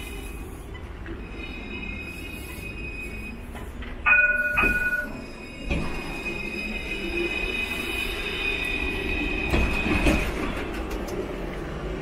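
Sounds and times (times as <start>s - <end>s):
tram rolling with high whine: 0.0s - 12.0s
tram bell rings: 0.8s - 7.8s.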